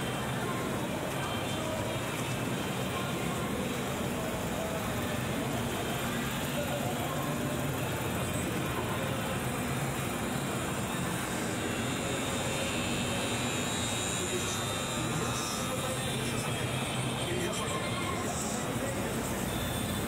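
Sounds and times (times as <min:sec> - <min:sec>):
faint voices of passers-by: 0:00.0 - 0:20.0.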